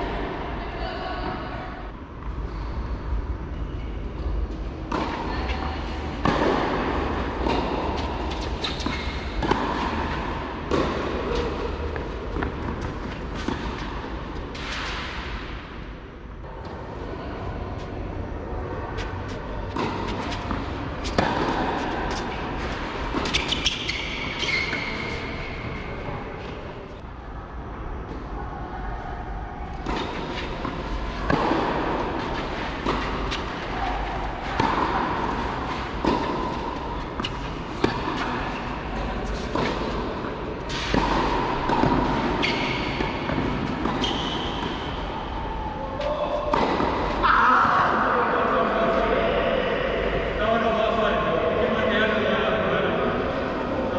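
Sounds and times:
people talking: 0.1 - 1.8, 45.1 - 53.9
rackets striking tennis ball: 6.1 - 15.8, 19.0 - 25.9, 29.8 - 47.3.

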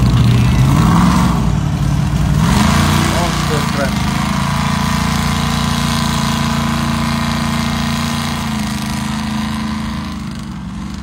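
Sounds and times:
truck engine running under load: 0.0 - 11.0.

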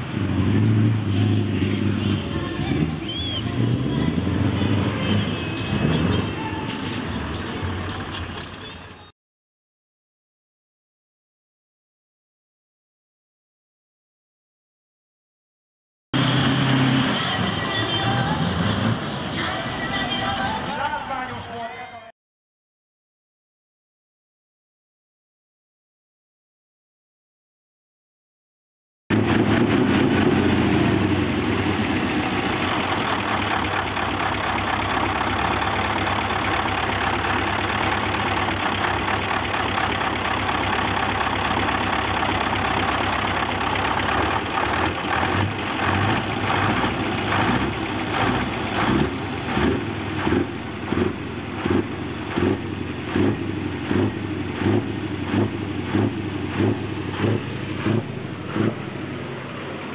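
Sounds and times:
diesel engine running loud: 0.0 - 9.1, 16.2 - 21.3, 29.1 - 59.9.

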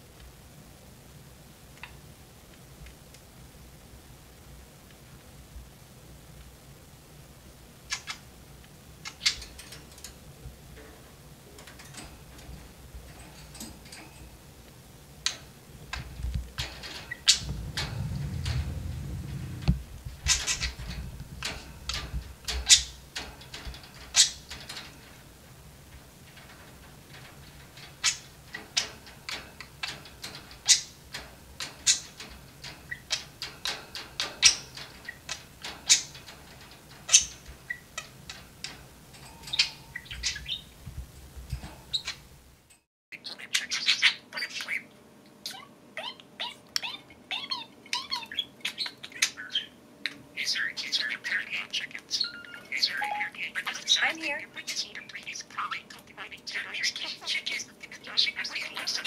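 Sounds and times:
budgerigars chirping: 39.5 - 40.7, 50.4 - 59.0.

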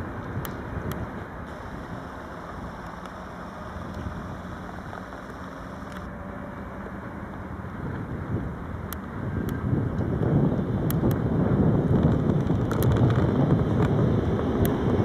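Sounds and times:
electric train rumbling over tracks: 0.0 - 15.0
faint hum: 1.4 - 7.2.

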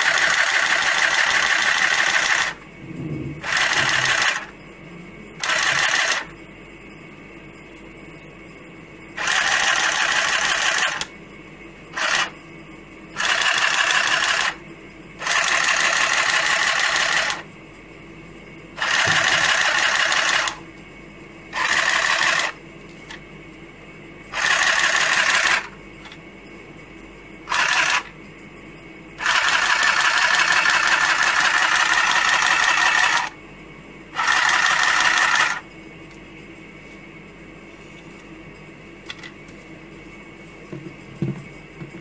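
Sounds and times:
handheld sewing machine buzzing: 0.0 - 2.6, 3.4 - 4.6, 5.4 - 6.3, 9.2 - 11.1, 11.9 - 12.4, 13.1 - 14.6, 15.2 - 17.5, 18.8 - 20.6, 21.5 - 23.2, 24.3 - 26.2, 27.4 - 28.2, 29.2 - 33.4, 34.1 - 35.6.

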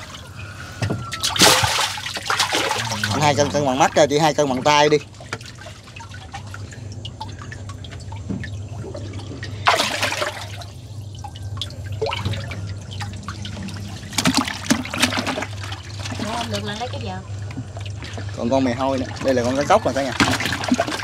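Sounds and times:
low hum: 0.0 - 21.0
water dripping and trickling: 0.0 - 21.0
loud splash: 1.2 - 3.3, 9.6 - 10.7
hands sloshing in water: 1.2 - 3.4, 5.0 - 16.9.

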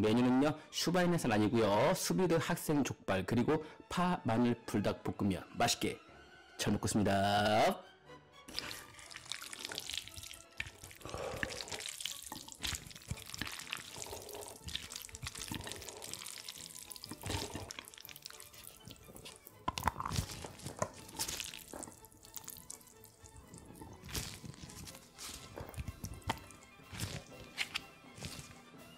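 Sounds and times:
food being chewed: 8.5 - 28.6.

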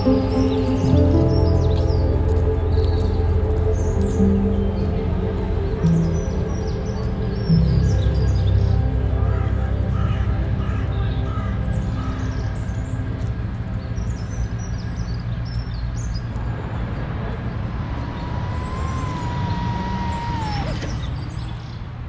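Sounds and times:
music track: 0.0 - 16.4
small birds chirping: 0.0 - 22.0
drone propellers rushing: 16.4 - 21.7
drone motor whine: 17.9 - 21.3.

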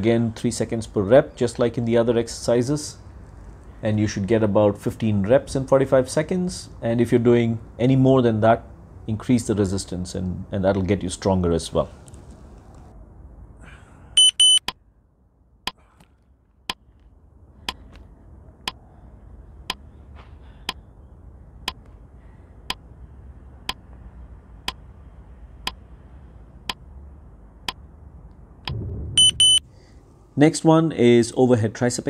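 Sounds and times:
high double beep: 14.2 - 14.7, 29.2 - 29.6
rapid high beeps: 14.2 - 14.7, 29.2 - 29.6
low rush of noise: 22.1 - 31.2.

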